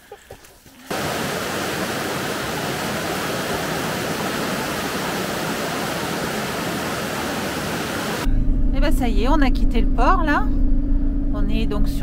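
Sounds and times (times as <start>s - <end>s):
river water tumbling over rocks: 0.9s - 8.2s.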